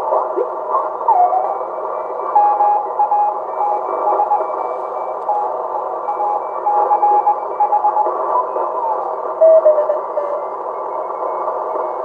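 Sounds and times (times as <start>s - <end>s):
radio band hiss: 0.0s - 12.0s
morse code beeping: 2.4s - 4.6s, 6.1s - 8.1s.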